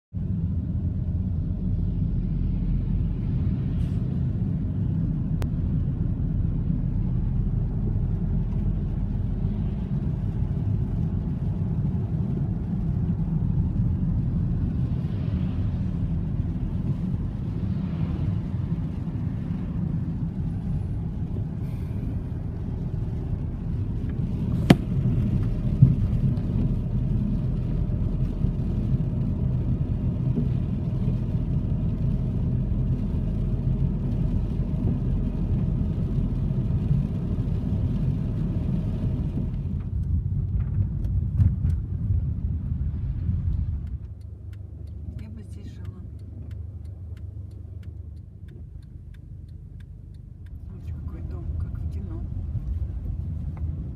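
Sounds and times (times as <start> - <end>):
car cabin road and engine rumble: 0.2 - 53.9.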